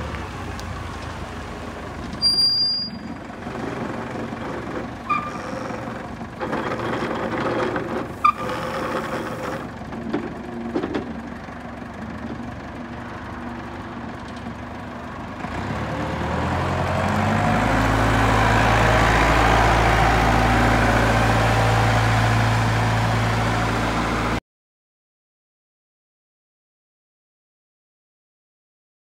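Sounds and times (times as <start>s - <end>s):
forklift engine revving: 0.0s - 12.5s, 15.3s - 24.4s.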